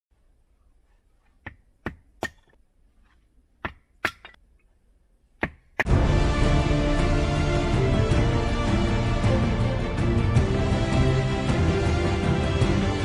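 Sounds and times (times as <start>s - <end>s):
wood being chopped: 1.4s - 2.6s, 3.6s - 4.4s, 5.4s - 5.9s
loud music: 5.9s - 13.0s.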